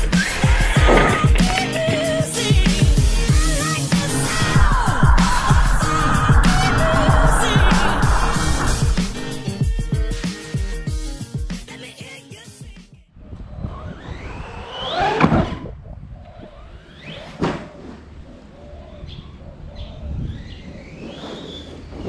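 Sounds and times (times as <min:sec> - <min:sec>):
toy truck landing thump: 0:00.8 - 0:01.7, 0:15.1 - 0:15.7.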